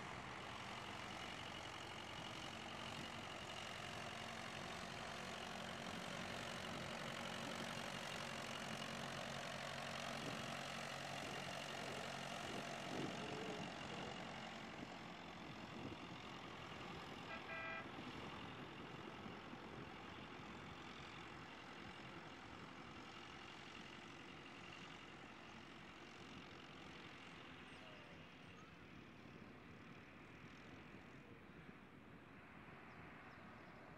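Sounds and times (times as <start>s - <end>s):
distant tractor engines running: 0.0s - 33.9s
short horn toot: 17.3s - 17.9s.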